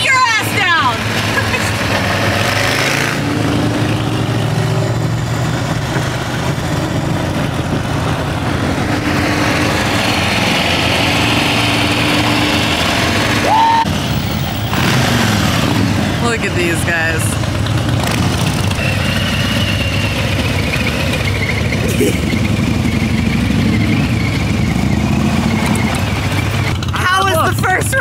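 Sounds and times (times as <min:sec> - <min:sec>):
motorcycle engines running: 0:00.0 - 0:28.0
road noise: 0:00.0 - 0:28.0
short rising squeal: 0:18.8 - 0:26.5.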